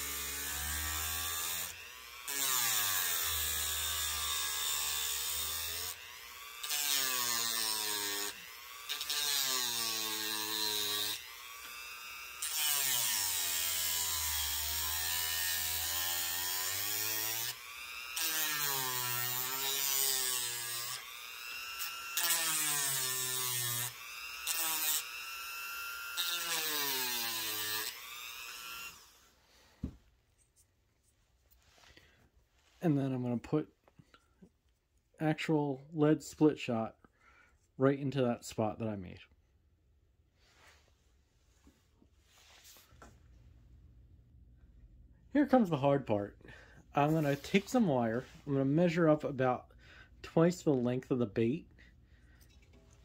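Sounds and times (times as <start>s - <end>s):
rotary tool grinding wood: 0.0s - 29.6s.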